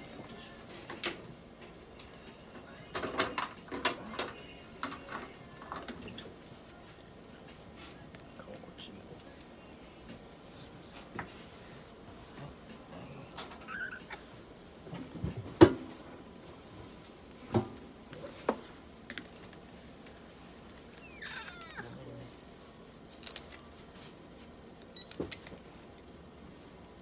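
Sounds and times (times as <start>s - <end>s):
cat meowing: 13.6s - 14.2s, 21.0s - 22.0s.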